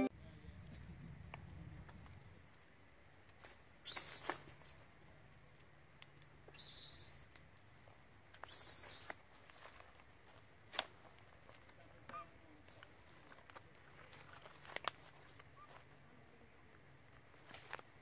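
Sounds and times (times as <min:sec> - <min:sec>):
macaque shrill squeaks: 0:03.4 - 0:04.9, 0:06.5 - 0:07.4, 0:08.4 - 0:09.2.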